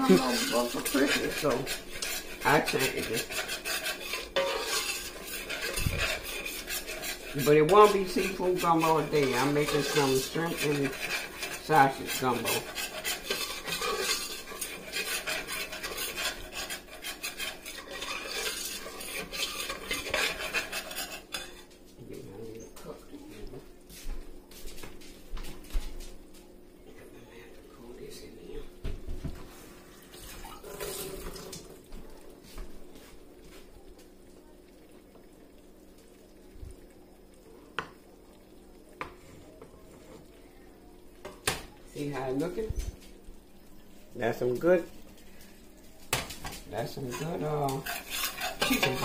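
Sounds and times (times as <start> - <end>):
spoon scraping a steel pot: 0.0 - 21.7, 46.9 - 49.0
faint hum: 0.0 - 46.1
faint sizzle: 0.0 - 49.0.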